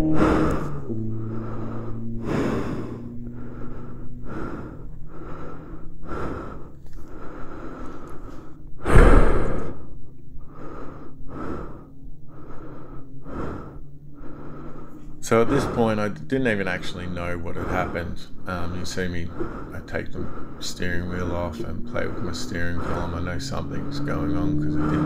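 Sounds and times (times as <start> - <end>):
engine idling low hum: 0.0 - 25.0
man breathing hard and gasping: 0.2 - 16.1, 19.3 - 20.6.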